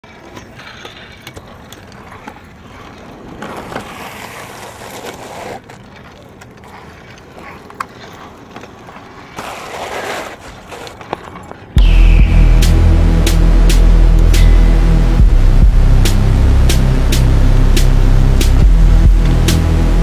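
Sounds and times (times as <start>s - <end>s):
scooter wheels rolling on concrete: 0.0s - 11.8s.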